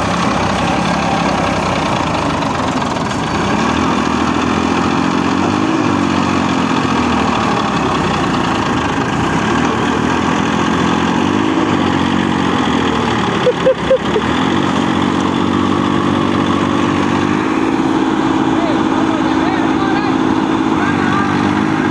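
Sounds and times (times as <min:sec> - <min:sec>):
tractor diesel engine revving: 0:00.0 - 0:21.9.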